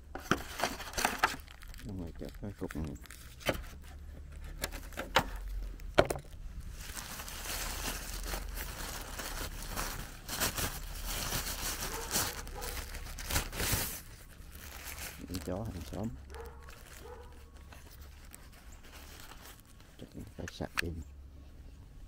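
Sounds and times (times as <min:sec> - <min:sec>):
plastic bag crinkling: 0:00.2 - 0:20.7.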